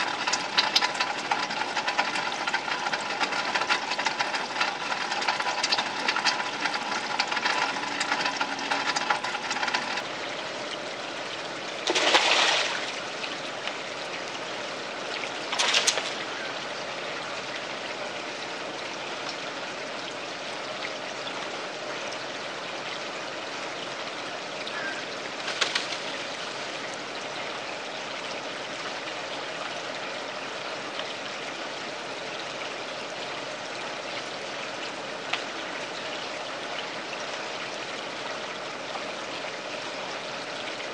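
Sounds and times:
running water trickling: 0.0s - 40.9s
loud splashes: 11.8s - 13.0s.

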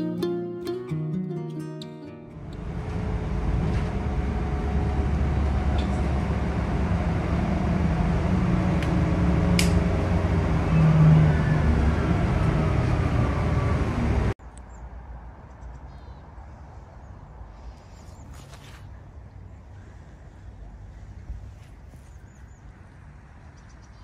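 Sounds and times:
road traffic engine rumble: 1.8s - 14.4s
vehicle passing: 2.2s - 14.4s.

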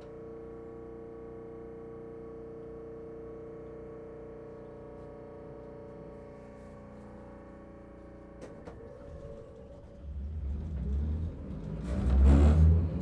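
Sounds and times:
streetcar motor and wheels rumbling: 8.3s - 13.0s.

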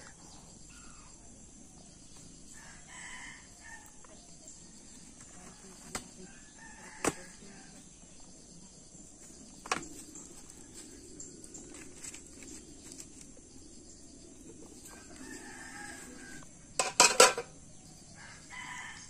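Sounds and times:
rooster crowing: 2.6s - 3.9s, 14.8s - 16.5s, 18.2s - 19.0s.

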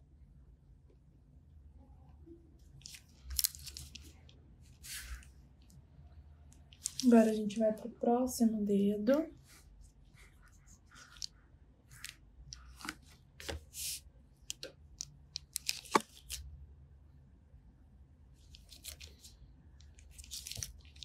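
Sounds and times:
latex gloves rustling: 2.8s - 5.4s, 6.7s - 7.3s, 9.4s - 14.6s, 18.5s - 19.3s, 19.9s - 21.0s.

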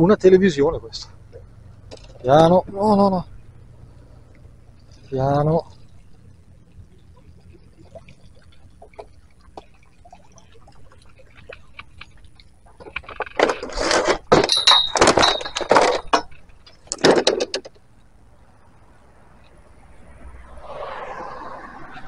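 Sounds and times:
television scraping and clattering: 12.8s - 14.4s.

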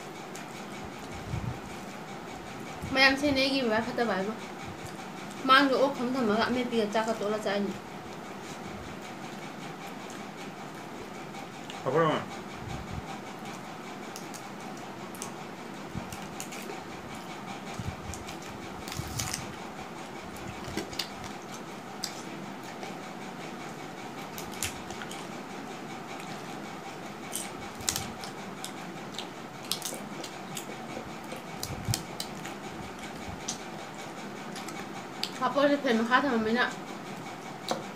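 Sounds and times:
crisp snack crunching: 27.3s - 32.6s.

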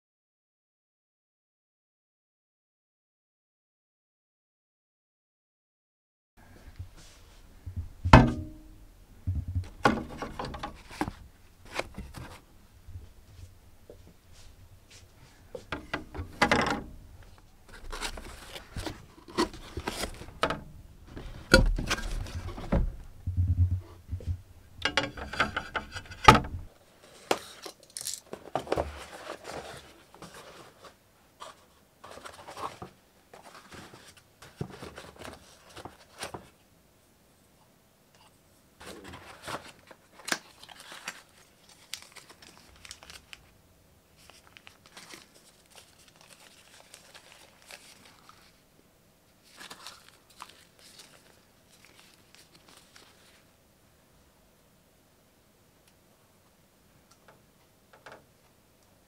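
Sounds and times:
knocks and bumps: 7.6s - 11.2s, 20.3s - 26.7s
cardboard box handling: 17.7s - 22.9s
plastic packaging crinkling: 39.2s - 43.5s, 44.2s - 48.6s, 49.4s - 53.4s.

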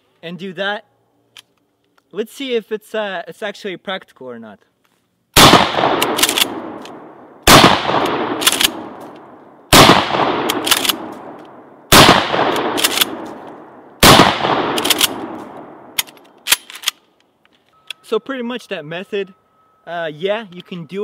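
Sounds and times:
shotgun shots echoing: 5.4s - 16.7s
shotgun pump racking clacks: 6.0s - 7.0s, 8.0s - 9.2s, 10.5s - 11.0s, 12.5s - 13.2s, 14.8s - 15.2s, 16.0s - 17.0s.

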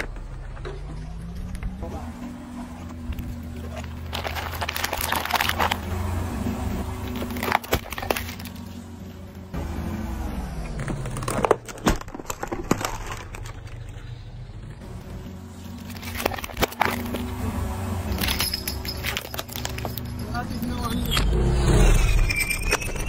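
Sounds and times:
car engine humming: 0.0s - 23.0s
plastic cracking and crunching: 3.1s - 5.9s, 6.9s - 8.7s, 10.8s - 14.2s, 15.8s - 17.3s, 19.0s - 20.1s.

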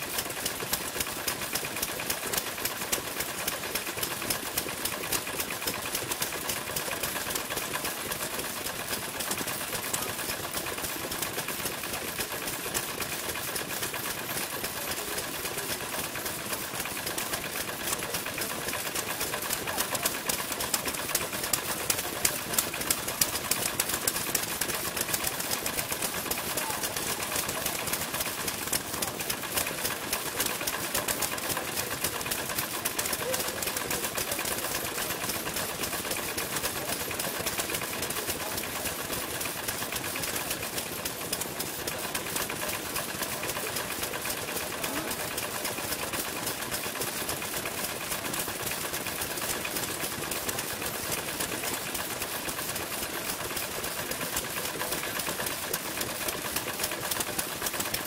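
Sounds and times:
old stationary engines popping and clattering: 0.0s - 58.0s.

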